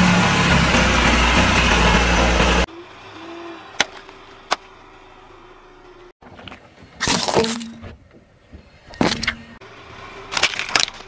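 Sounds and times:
car engine running: 0.0s - 6.2s.

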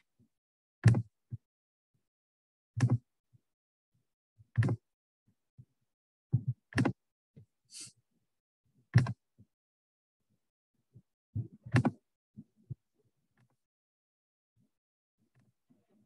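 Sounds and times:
sharp clicks with dull thump: 0.8s - 1.0s, 2.8s - 3.0s, 4.6s - 4.8s, 6.3s - 7.0s.

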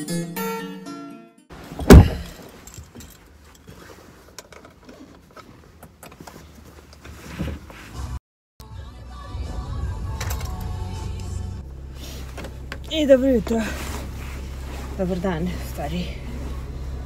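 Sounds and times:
rustling: 1.6s - 8.2s, 12.0s - 17.0s
loud thump: 1.8s - 2.4s
keys jingling: 1.8s - 3.8s.

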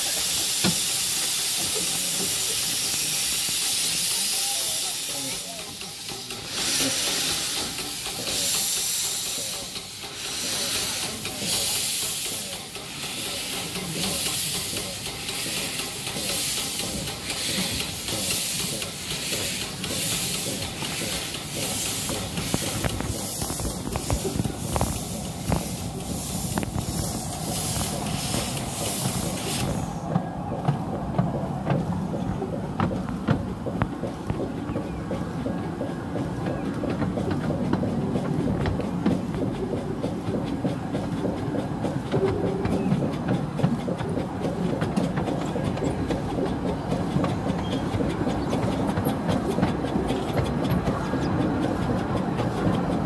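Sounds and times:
hiss of steam: 0.0s - 30.2s
steam locomotive exhaust chuffs: 0.0s - 53.0s.

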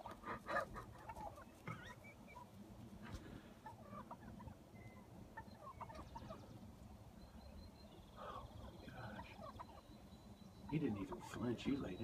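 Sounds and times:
turkey rattling call: 0.0s - 2.7s, 3.6s - 12.0s
wild turkeys clucking: 0.0s - 12.0s.

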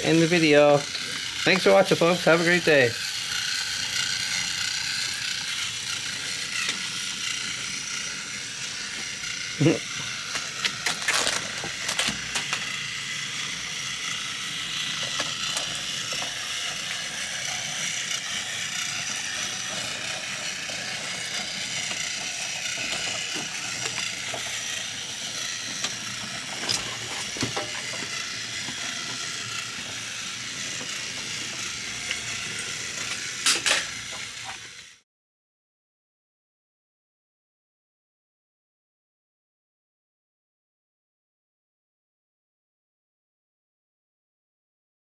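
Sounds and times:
toy train motor whirring: 0.0s - 35.0s.

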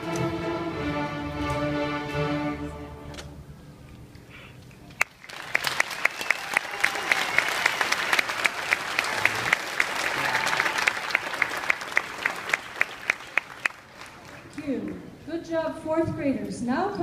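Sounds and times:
close steady clapping: 4.9s - 15.0s
audience applauding: 5.0s - 15.0s.

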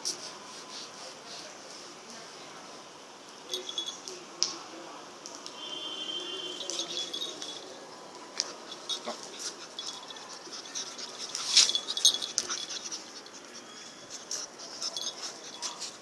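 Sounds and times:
collar clinking: 3.5s - 4.2s, 6.4s - 16.0s
dog claws clicking on concrete: 8.4s - 13.6s.

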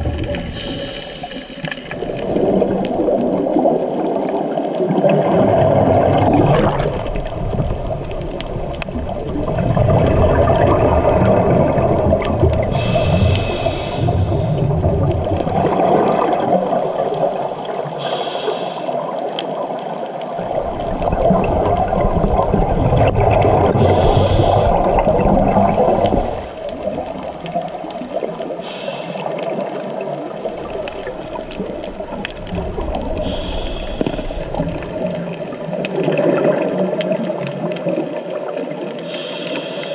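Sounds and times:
exhaled bubbles streaming: 0.0s - 39.9s
regulator inhalation hiss: 0.4s - 2.5s, 12.7s - 14.6s, 18.0s - 19.1s, 23.8s - 25.0s, 28.6s - 29.6s, 33.1s - 34.8s, 39.0s - 39.9s.

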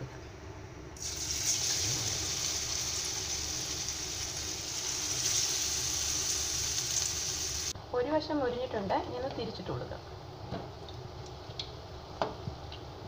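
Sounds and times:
fritters sizzling in hot oil: 1.0s - 7.8s.

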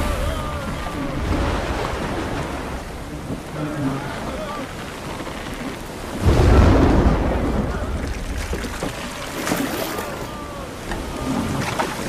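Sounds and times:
deep rumbling crash: 0.0s - 3.7s, 6.2s - 9.8s
rough water: 0.0s - 12.0s
wind: 0.0s - 12.0s.

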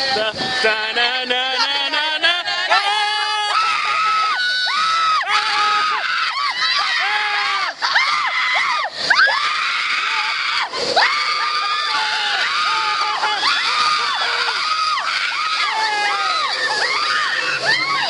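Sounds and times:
women screaming: 2.6s - 18.0s.

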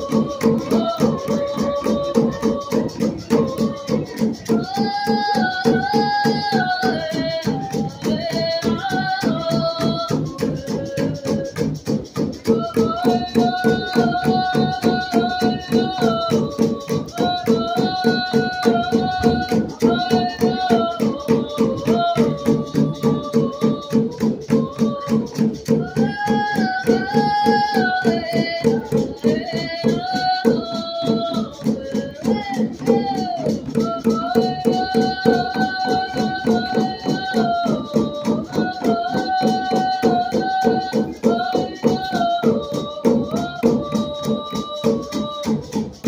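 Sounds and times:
steady drumbeat: 0.0s - 46.0s
group chanting song: 12.6s - 45.6s.

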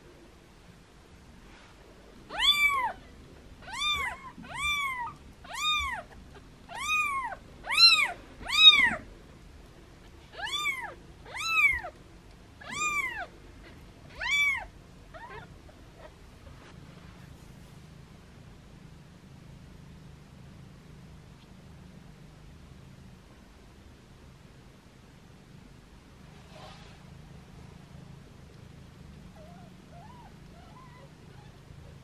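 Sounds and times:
kitten meowing: 2.3s - 3.0s, 3.6s - 9.0s, 10.3s - 12.0s, 12.6s - 13.3s, 14.1s - 16.1s.

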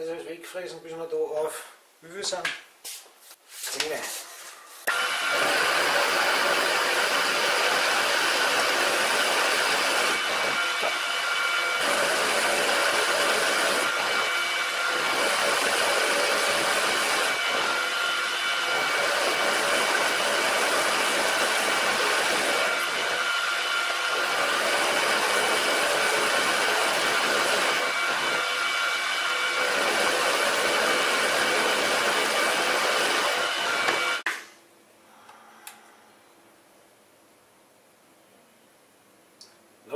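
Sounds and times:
milling machine whining and cutting: 4.9s - 34.3s.

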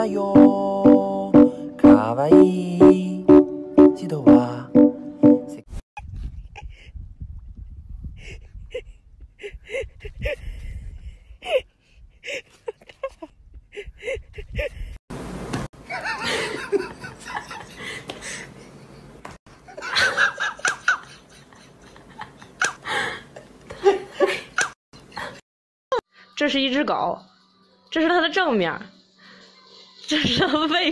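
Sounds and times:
person laughing: 12.3s - 14.8s.

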